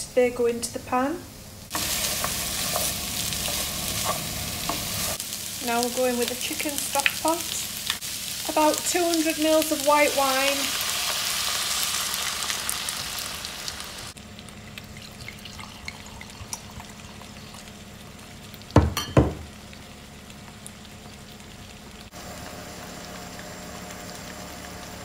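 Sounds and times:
vegetables sizzling in a frying pan: 0.6s - 14.4s, 16.9s - 25.0s
wine pouring: 14.6s - 17.7s.

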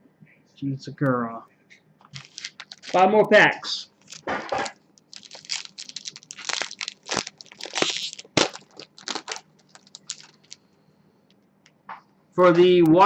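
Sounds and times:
foil pack tearing and crinkling: 2.2s - 3.1s, 4.0s - 10.6s.

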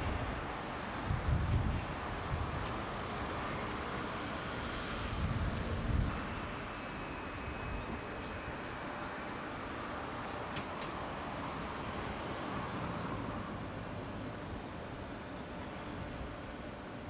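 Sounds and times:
wind buffeting microphone: 0.0s - 2.9s, 5.0s - 6.4s
outdoor background rumble: 0.0s - 17.0s.

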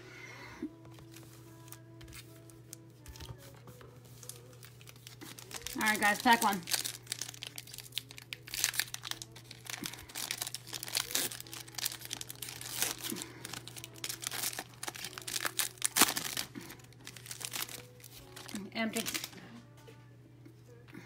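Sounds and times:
foil wrapper crinkling: 0.9s - 19.4s.

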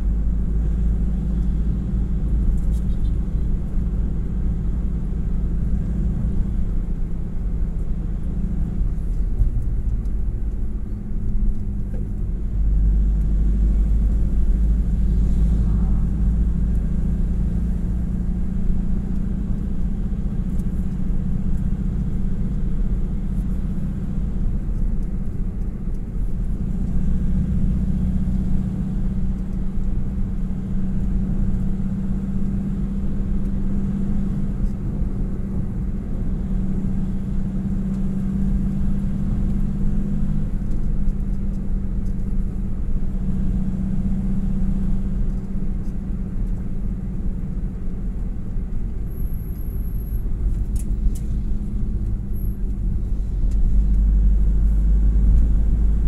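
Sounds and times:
vehicle engine and tyre rumble: 0.0s - 56.0s
steady drone: 13.8s - 17.5s.

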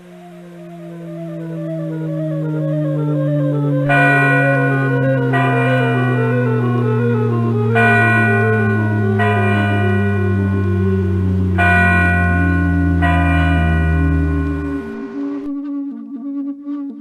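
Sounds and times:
steady low drone: 0.0s - 15.9s
slow stepping melody: 0.0s - 16.7s
bell ringing: 3.9s - 15.6s.

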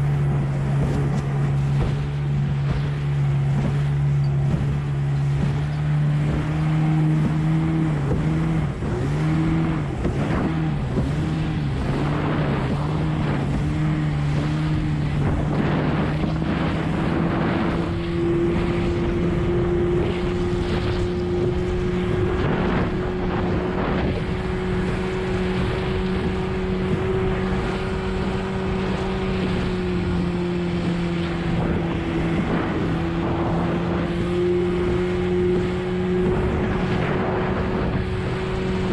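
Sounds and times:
outboard motor droning: 0.0s - 38.9s
water splashing against hull: 0.0s - 38.9s
wind on microphone: 0.0s - 38.9s.

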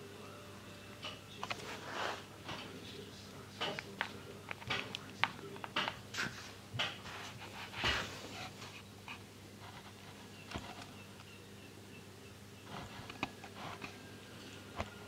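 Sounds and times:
hand clicks and scrapes near microphone: 3.6s - 11.3s, 12.6s - 14.0s.

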